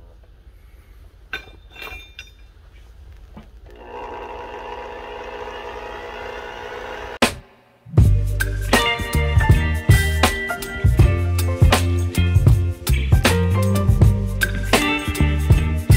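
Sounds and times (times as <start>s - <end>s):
steel spring clinking on coals: 1.3s - 2.8s
air blower hum: 3.7s - 13.1s.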